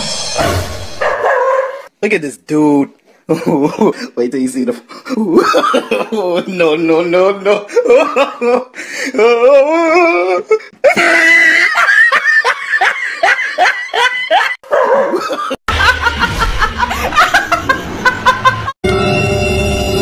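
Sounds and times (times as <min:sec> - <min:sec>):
hearty laughter in bursts: 0:04.9 - 0:06.7, 0:07.4 - 0:18.8
young woman laughing loudly: 0:05.3 - 0:06.2, 0:07.7 - 0:08.8, 0:10.8 - 0:18.8.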